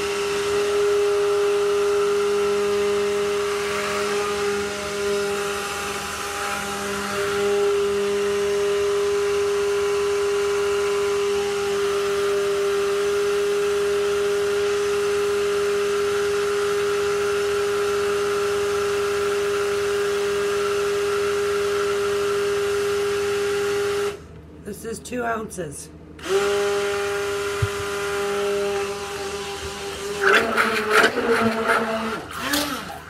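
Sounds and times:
stick blender humming: 0.0 - 24.8, 26.2 - 33.0.

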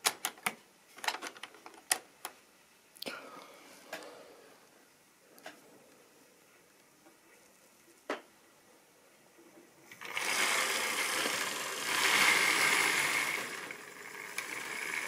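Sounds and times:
model train motor whirring: 9.9 - 15.0.

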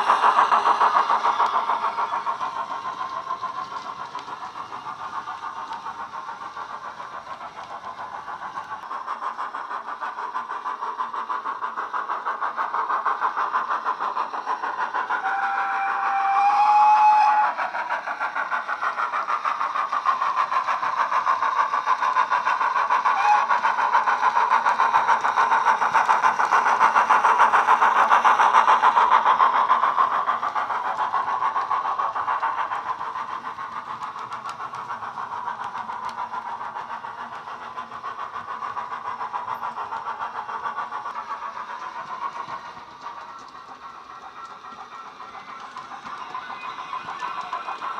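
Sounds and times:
model steam locomotive chuffs: 0.0 - 47.9
locomotive whistle: 15.2 - 17.6, 23.2 - 23.6.

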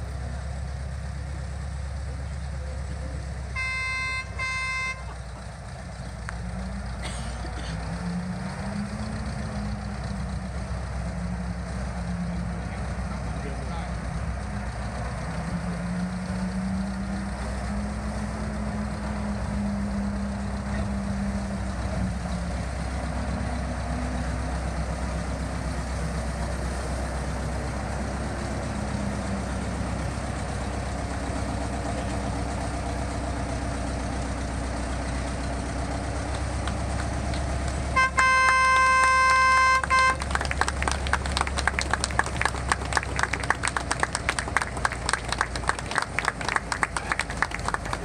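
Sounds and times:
locomotive diesel engine running: 0.0 - 48.0
locomotive horn blast: 3.5 - 5.2, 37.8 - 40.6.

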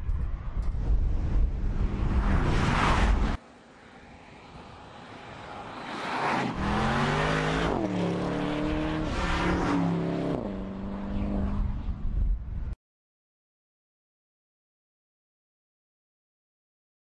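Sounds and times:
car engine accelerating with upshifts: 5.8 - 11.8.

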